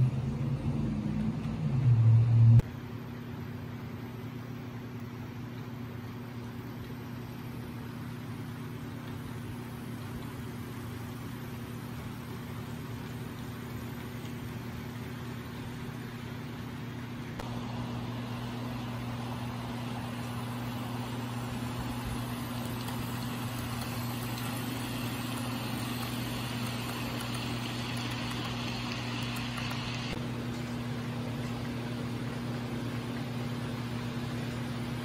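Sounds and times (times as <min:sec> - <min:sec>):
model locomotives running: 0:21.1 - 0:30.2.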